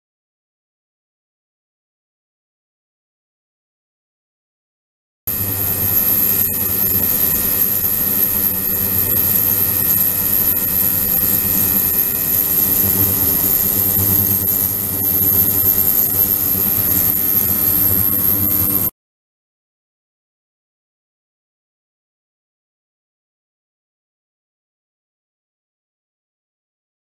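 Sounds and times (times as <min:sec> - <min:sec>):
high-pitched whine: 0:05.3 - 0:18.9
ultrasonic cleaner hiss and hum: 0:05.3 - 0:18.9.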